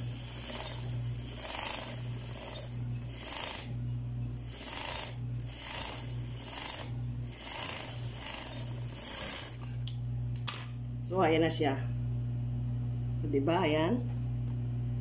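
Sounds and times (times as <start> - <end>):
sewing machine stitching: 0.0 - 3.7, 4.4 - 9.7.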